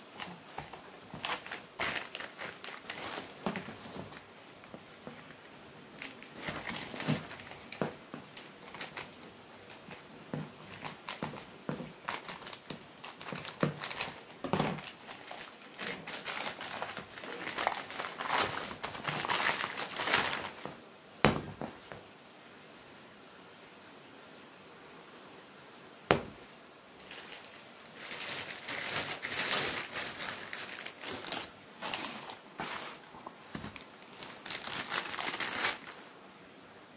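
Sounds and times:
plastic bag crinkling: 0.0 - 20.8, 27.0 - 36.0.

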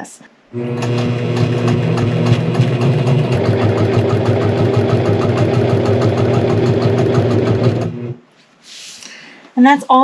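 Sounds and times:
motor hum: 0.5 - 8.2.

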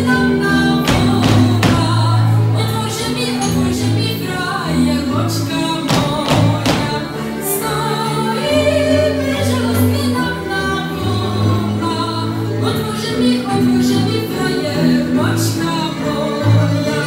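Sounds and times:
folk dance music with singing: 0.0 - 17.0
stepping bass line: 0.7 - 2.4.

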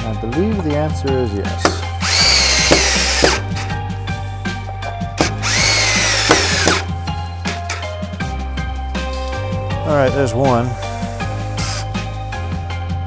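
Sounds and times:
cordless drill driving screws: 2.0 - 3.4, 5.2 - 6.9.

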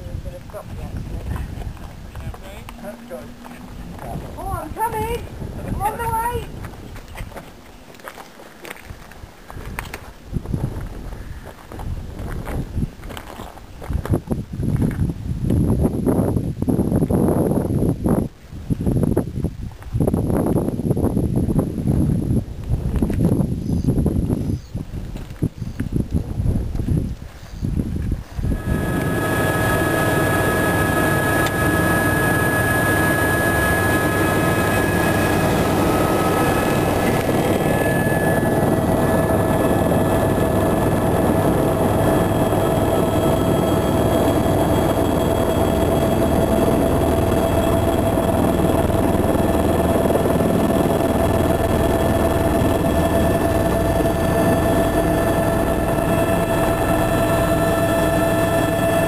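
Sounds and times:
helicopter engine and rotor drone: 0.5 - 6.5, 28.4 - 59.0.

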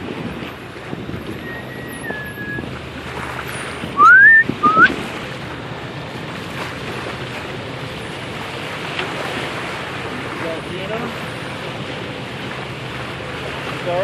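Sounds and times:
sea noise: 0.0 - 14.0
wind: 0.0 - 14.0
short rising whistles: 1.4 - 2.6, 4.0 - 4.9.

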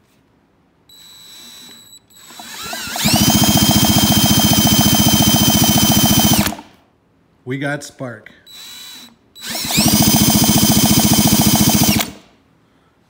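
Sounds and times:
cordless drill turning engine over: 1.3 - 6.7, 8.6 - 12.2.

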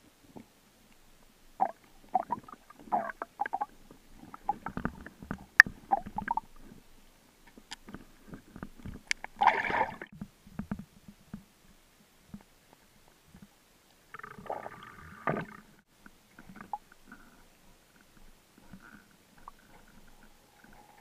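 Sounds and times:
underwater clicks and knocks: 2.2 - 6.5, 7.5 - 11.5.

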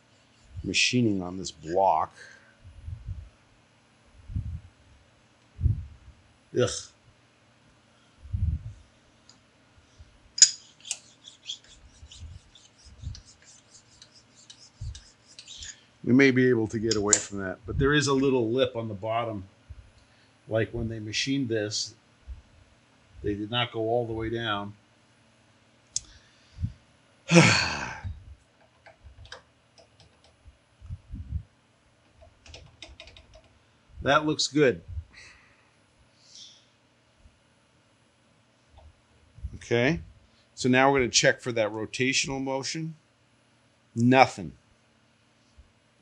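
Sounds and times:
metallic clink: 10.4 - 11.0
light clicks and scrapes: 10.5 - 15.8
person sighing heavily: 27.3 - 28.2.

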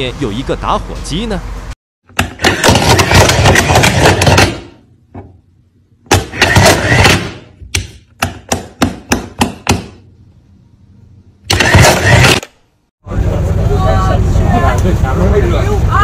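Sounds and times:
mechanism whirring and clattering: 2.0 - 4.8, 6.1 - 7.6, 11.4 - 12.8.

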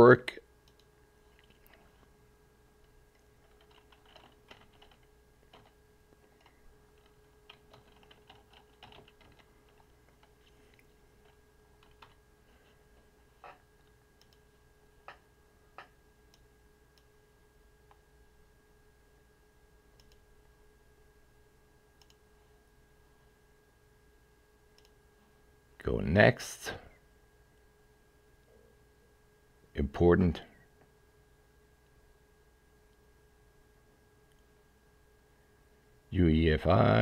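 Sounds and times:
faint steady hum: 0.0 - 37.0
mouse clicks: 0.6 - 0.9, 22.0 - 22.2, 24.8 - 25.0
typing on keyboard: 3.4 - 5.8, 6.4 - 10.4, 11.2 - 12.2.

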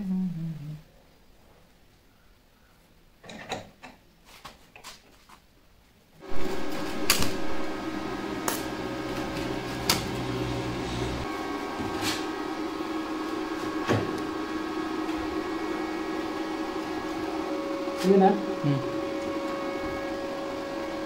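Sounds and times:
arc welder crackling buzz: 6.2 - 21.0.

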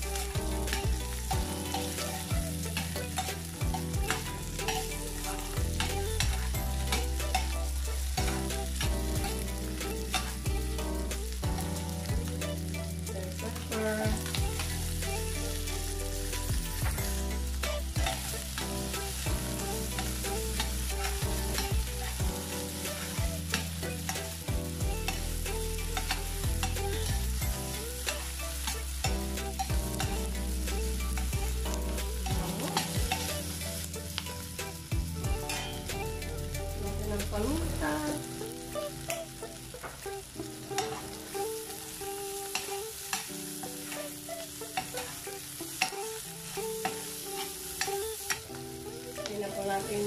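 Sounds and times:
vegetables sizzling in oil: 0.0 - 50.0
metal spatula scraping pan: 31.1 - 34.2.

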